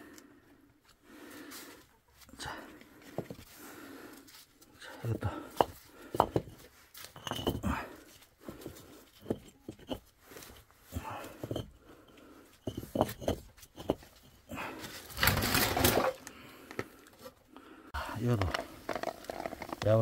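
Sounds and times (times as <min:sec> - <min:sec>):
bricks knocking and scraping: 0:05.1 - 0:16.9, 0:18.2 - 0:20.0.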